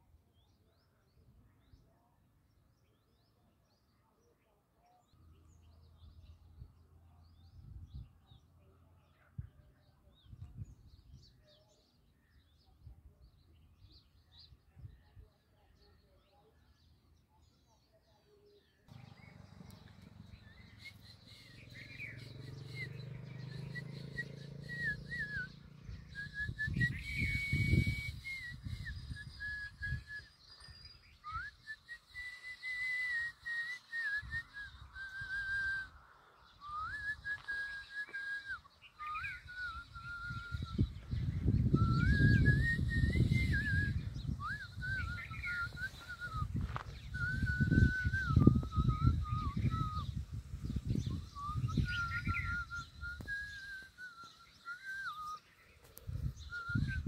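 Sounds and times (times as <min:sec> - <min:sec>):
person whistling a tune: 0:23.7 - 0:30.4, 0:31.2 - 0:36.0, 0:36.6 - 0:50.2, 0:50.8 - 0:55.5, 0:56.2 - 0:57.0.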